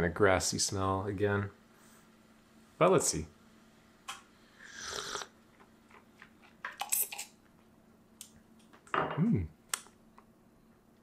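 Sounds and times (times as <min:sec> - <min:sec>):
person slurping from a cup: 0:04.6 - 0:05.4.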